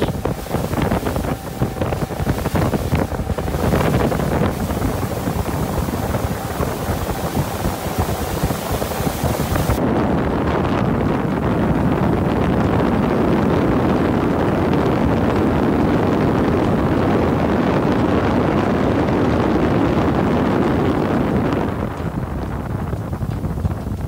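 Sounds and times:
motorboat engine: 0.0s - 9.8s
water noise: 0.0s - 24.0s
wind rushing over microphone: 0.0s - 24.0s.

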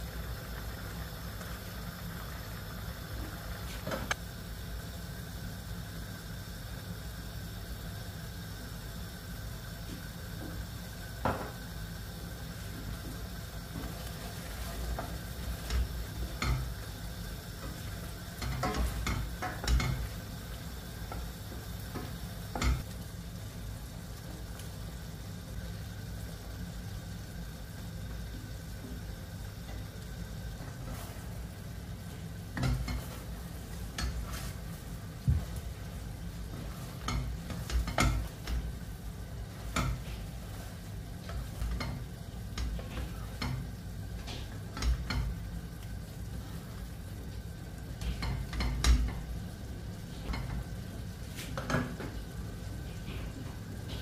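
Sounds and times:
food sizzling in a pan: 0.0s - 54.0s.

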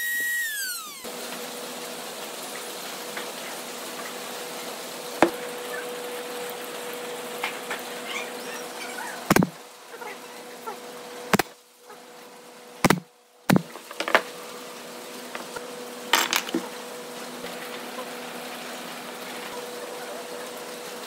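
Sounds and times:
nail gun popping: 9.3s - 9.5s, 12.8s - 14.2s.

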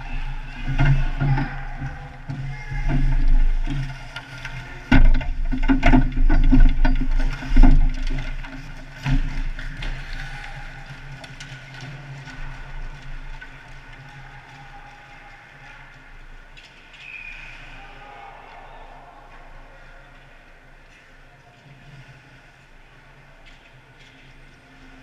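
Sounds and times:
stick and skate clatter: 0.0s - 17.8s, 23.4s - 25.0s.

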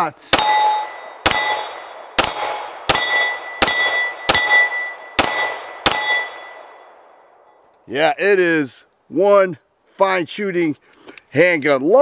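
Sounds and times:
pistol shots: 0.3s - 7.0s
steel plate target ringing: 0.4s - 7.0s.

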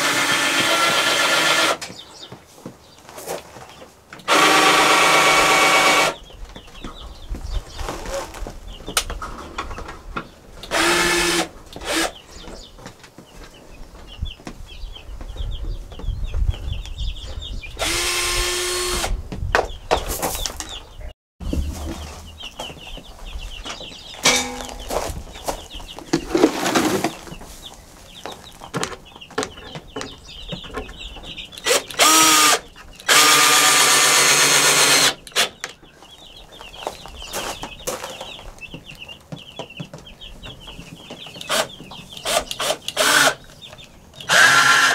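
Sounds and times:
cordless drill whine: 0.0s - 1.8s, 4.3s - 6.2s, 10.7s - 12.1s, 17.8s - 19.1s, 31.7s - 35.5s, 42.2s - 43.4s, 44.3s - 44.9s
chicks peeping: 1.8s - 4.3s, 6.1s - 10.8s, 11.6s - 17.8s, 19.3s - 32.0s, 32.6s - 33.2s, 35.2s - 44.9s.

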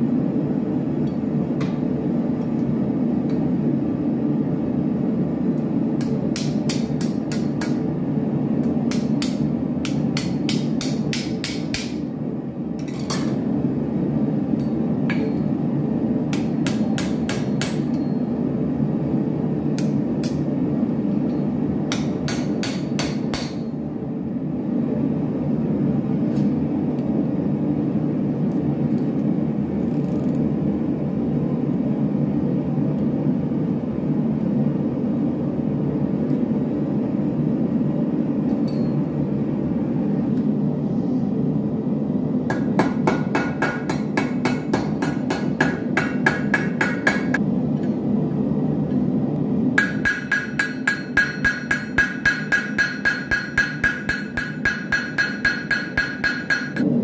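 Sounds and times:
hammer striking steel on anvil: 6.0s - 7.9s, 8.6s - 12.1s, 14.6s - 15.5s, 16.3s - 18.3s, 19.8s - 20.5s, 21.3s - 23.7s, 38.6s - 39.0s, 42.5s - 48.0s, 49.8s - 56.9s.

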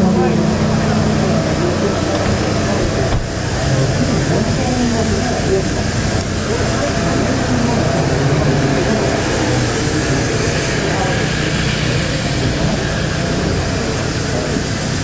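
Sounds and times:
chatter of many people: 0.0s - 15.0s
steady low hum: 0.0s - 15.0s.

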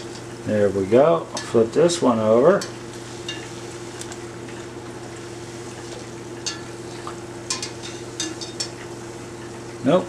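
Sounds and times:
dough sizzling in hot oil: 0.0s - 10.0s
skimmer clinking against pot: 6.4s - 6.8s, 7.4s - 8.9s.

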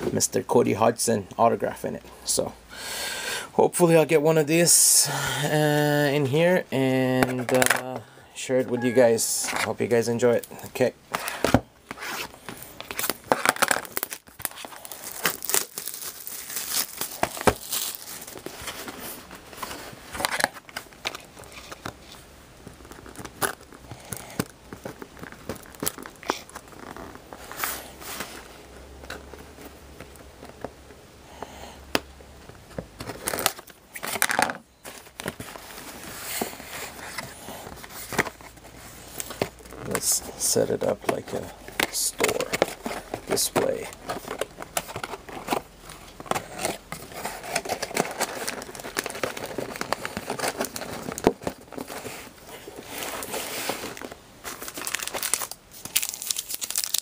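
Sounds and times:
wrapping tearing and crinkling: 12.0s - 29.6s, 35.0s - 57.0s
cardboard box handled and opened: 39.2s - 55.4s.

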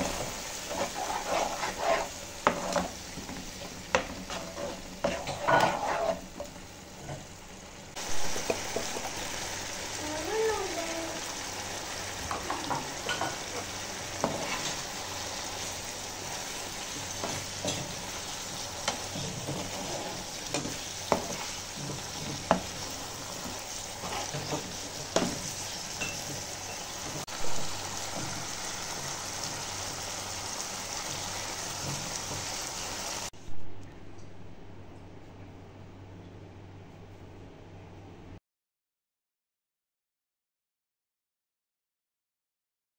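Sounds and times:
spatula scraping pan: 0.0s - 6.5s, 12.3s - 27.2s
gravy sizzling in frying pan: 0.0s - 33.3s.

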